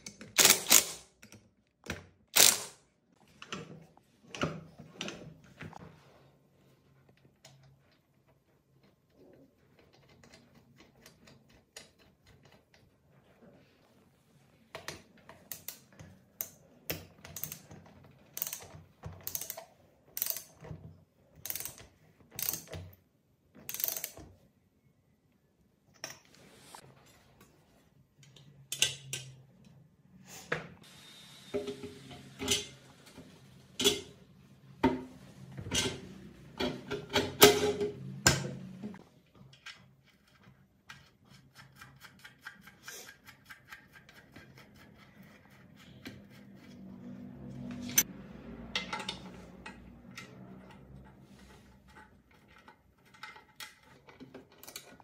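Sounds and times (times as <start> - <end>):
ratchet wrench clicking: 2.4 - 2.8, 17.4 - 17.6, 18.4 - 19.6, 20.2 - 20.6, 21.4 - 21.8, 22.4 - 22.7, 23.7 - 24.2.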